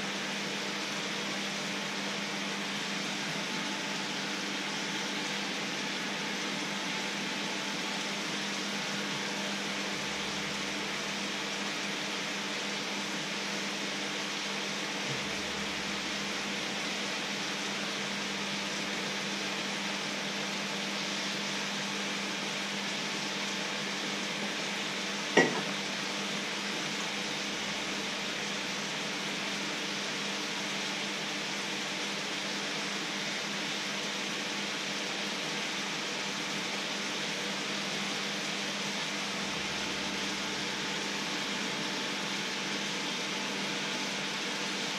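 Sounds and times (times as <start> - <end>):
water boiling hard in a pan: 0.0 - 44.9
steady low hum: 14.8 - 18.0.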